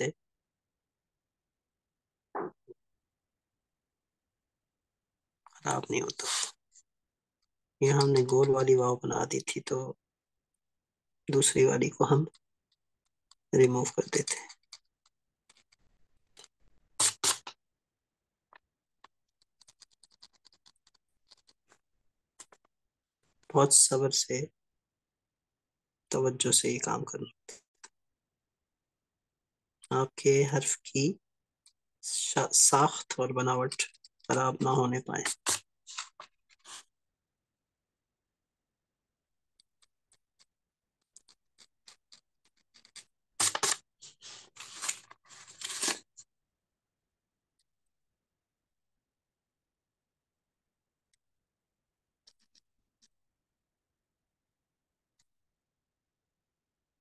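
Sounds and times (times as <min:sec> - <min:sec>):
knife blade scratching paper: 0:17.0 - 0:17.5
blade scratching paper: 0:17.0 - 0:17.6, 0:41.2 - 0:46.0.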